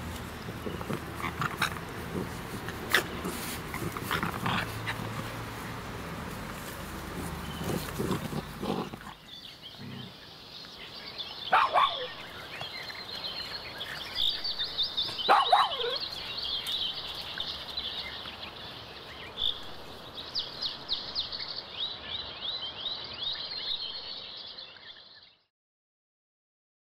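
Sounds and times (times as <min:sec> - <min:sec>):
dogs growling in play: 0:00.0 - 0:10.4
high chirring wildlife chorus: 0:00.0 - 0:25.4.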